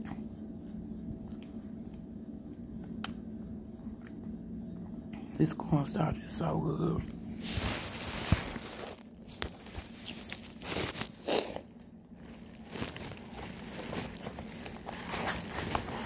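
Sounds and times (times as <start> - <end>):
cornstarch crunching while chewed: 7.4 - 16.0.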